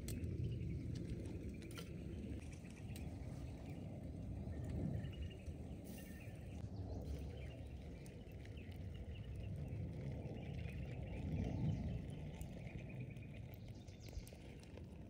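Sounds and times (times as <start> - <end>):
low outdoor rumble: 0.0 - 15.0
small birds chirping: 0.0 - 15.0.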